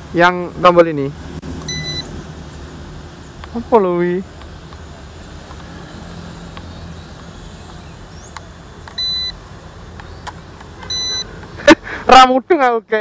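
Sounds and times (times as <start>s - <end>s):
short high electronic beep: 1.7s - 2.1s, 9.0s - 9.4s, 10.9s - 11.3s.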